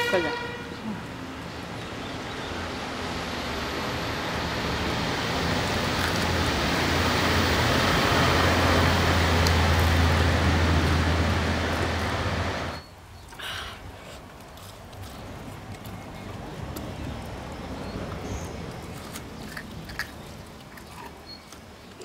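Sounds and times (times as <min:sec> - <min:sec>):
motor vehicle passing: 0:00.0 - 0:12.8.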